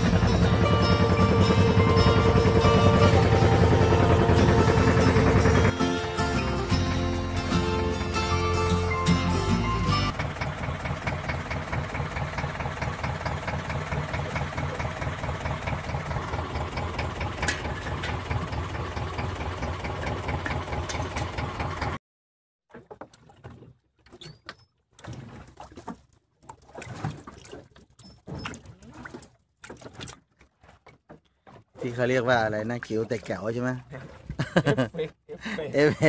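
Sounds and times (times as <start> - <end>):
boat engine running: 0.0 - 22.0.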